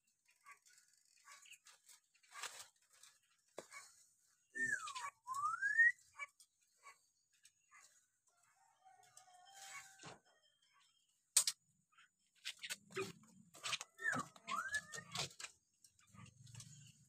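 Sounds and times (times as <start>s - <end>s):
bird clicks and scratchy notes: 0.1s - 4.0s, 11.3s - 17.0s
bird whistling: 4.5s - 6.3s, 14.0s - 15.2s.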